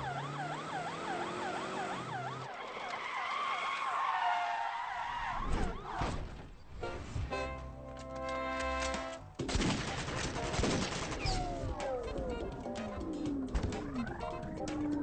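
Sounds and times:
police siren yelping: 0.0s - 6.0s, 11.2s - 15.0s.

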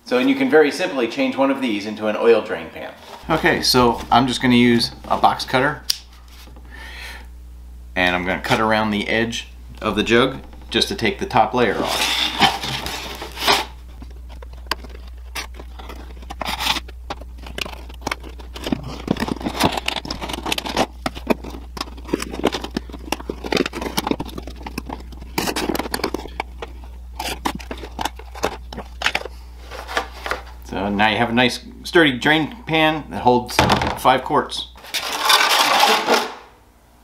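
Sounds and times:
box cutter cutting plastic: 14.6s - 29.2s.

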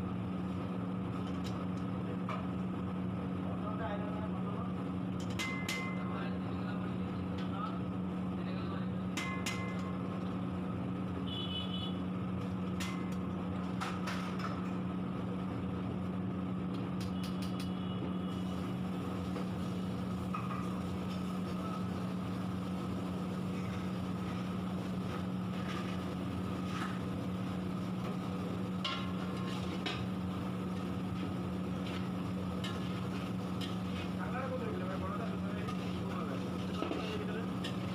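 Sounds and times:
kitchen machinery humming: 12.6s - 37.9s.

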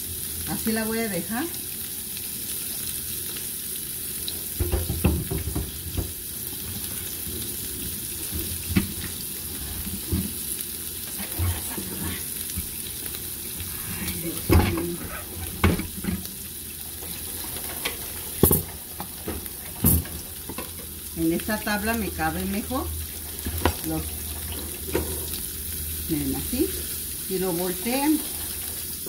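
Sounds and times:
cheese sizzling in a frying pan: 0.0s - 29.0s
kitchen knocks and clatters: 4.6s - 7.4s, 8.2s - 9.2s, 14.3s - 16.3s, 17.1s - 20.9s, 24.8s - 25.4s.

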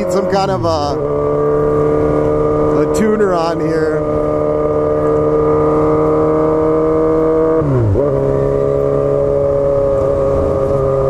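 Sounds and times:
loud motorcycle engine running: 0.0s - 11.0s.

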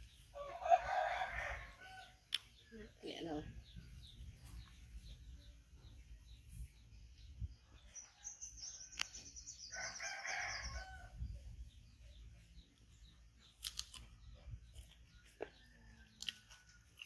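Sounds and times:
rooster crowing: 0.4s - 2.1s, 9.7s - 11.2s.

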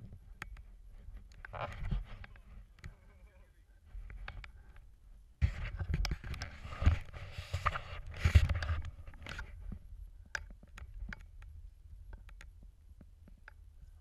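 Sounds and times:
light clicks and taps: 4.0s - 4.9s, 7.6s - 14.0s
camera handling rustling and knocks: 5.4s - 9.8s.

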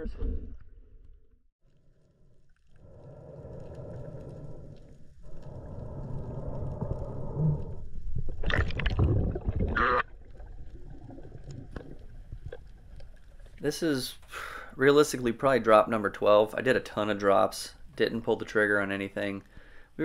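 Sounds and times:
muffled underwater water noise: 1.7s - 15.6s
gurgling water surge: 2.8s - 12.9s.

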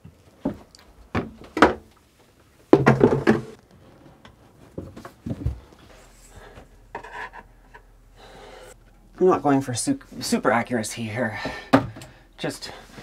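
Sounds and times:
plastic toilet knocking on wood: 2.7s - 3.6s.

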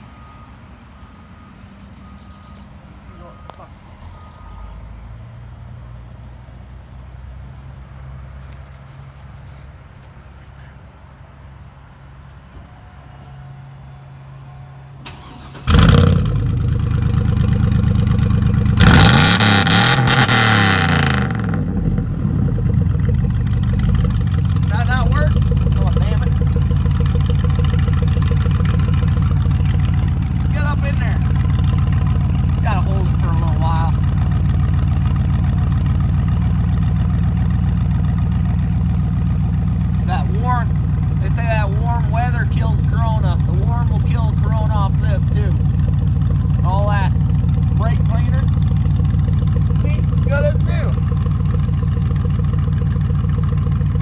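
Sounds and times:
pickup truck engine revving: 15.0s - 54.0s.

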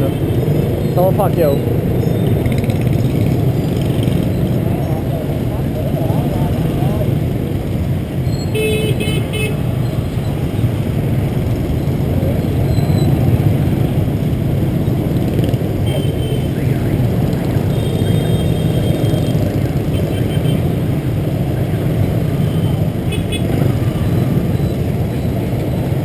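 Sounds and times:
scooter engine and road rumble: 0.0s - 26.0s
horn beeps: 22.4s - 25.8s.

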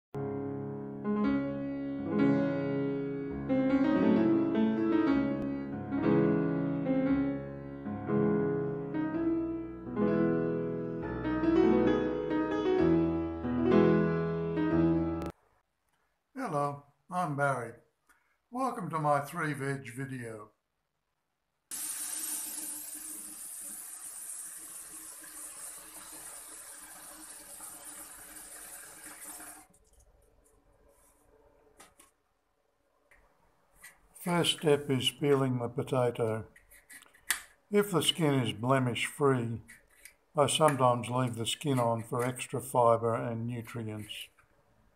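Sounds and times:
piano music: 0.2s - 15.3s.

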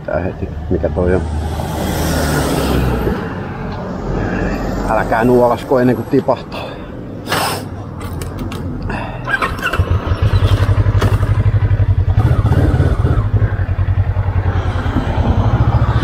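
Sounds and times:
motorcycle engine running: 9.6s - 16.0s.

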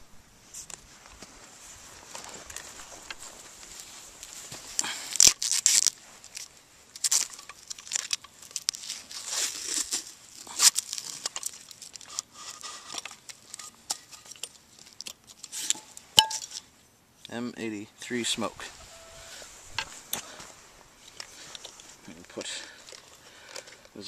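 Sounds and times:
tape and paper tearing: 5.1s - 6.0s, 7.0s - 13.4s.

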